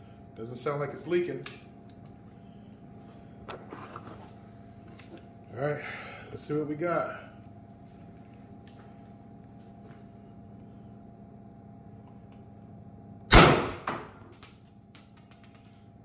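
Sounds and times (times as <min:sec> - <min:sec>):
pneumatic launcher crack: 0:13.3 - 0:14.2.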